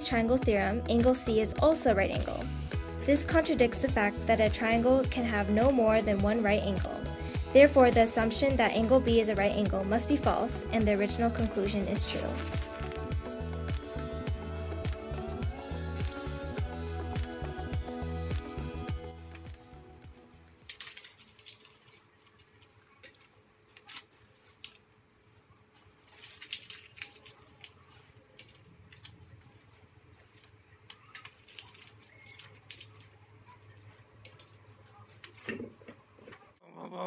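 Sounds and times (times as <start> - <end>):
paper rustling and clicking: 20.6 - 24.9, 25.8 - 36.4.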